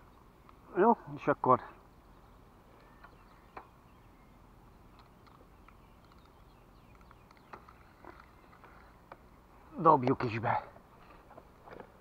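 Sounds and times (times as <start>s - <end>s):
faint outdoor ambience: 0.0s - 12.0s
faint clicks: 4.9s - 9.2s.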